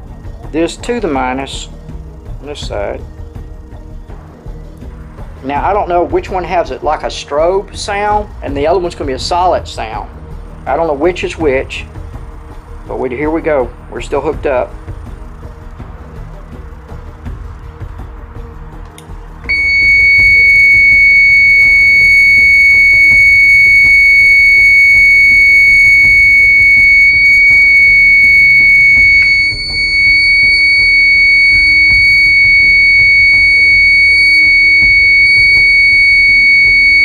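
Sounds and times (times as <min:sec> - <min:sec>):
alarm siren steady high tone: 0:19.5 - 0:37.0.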